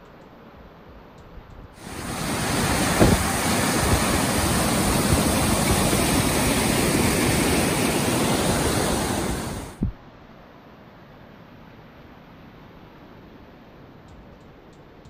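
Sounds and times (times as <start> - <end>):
waterfall rushing: 1.8 - 9.8.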